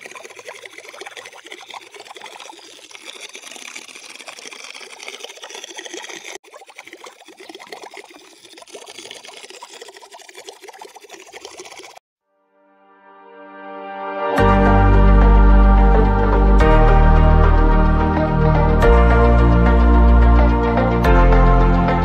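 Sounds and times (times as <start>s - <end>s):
air bubbling underwater: 0.0s - 12.0s.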